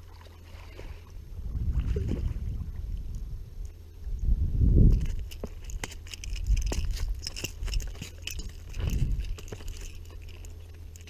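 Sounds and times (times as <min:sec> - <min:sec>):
fish flopping on stones: 0:04.9 - 0:11.0
footsteps crunching on gravel: 0:05.0 - 0:11.0.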